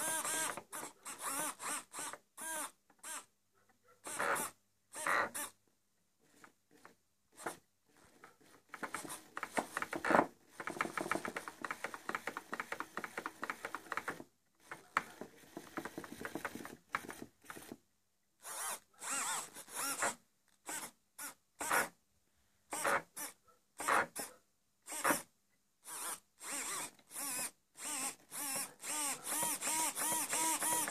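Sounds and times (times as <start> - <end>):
servo motors whirring: 25.9 - 30.9.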